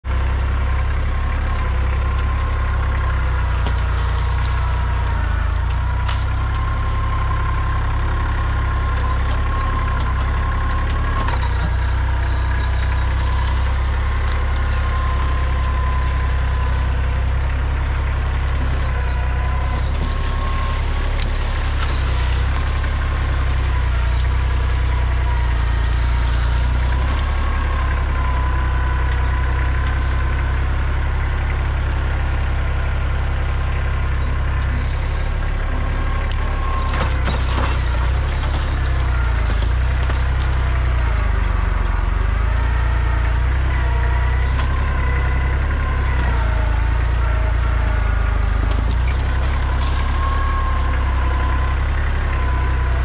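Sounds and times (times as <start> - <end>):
tractor diesel engine running: 0.0 - 53.0
branches snapping: 2.1 - 30.6, 35.8 - 41.2, 48.0 - 52.4.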